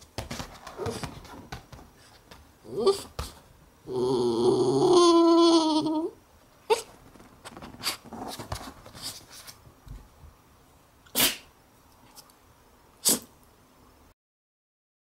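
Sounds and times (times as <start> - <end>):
dog sneezing: 11.1 - 11.5, 13.0 - 13.3.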